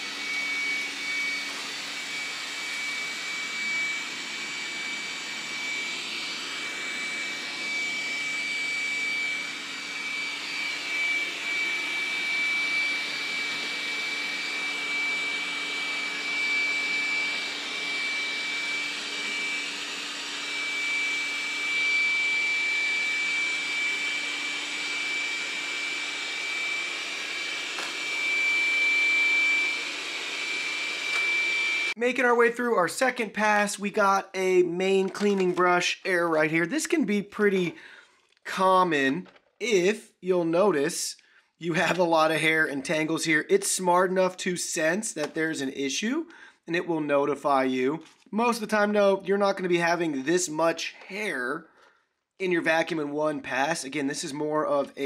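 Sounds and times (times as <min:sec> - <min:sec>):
robot vacuum running: 0:00.0 - 0:31.9.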